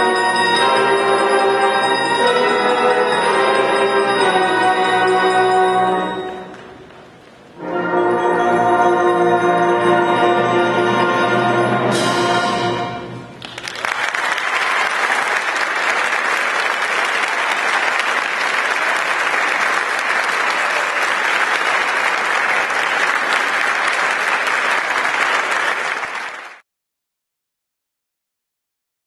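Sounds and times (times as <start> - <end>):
audience applause: 13.4 - 26.6.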